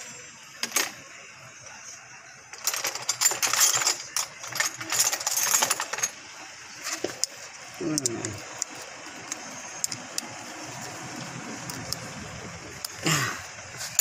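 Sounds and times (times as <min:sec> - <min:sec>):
metallic clicks and rattling: 0:02.5 - 0:06.2.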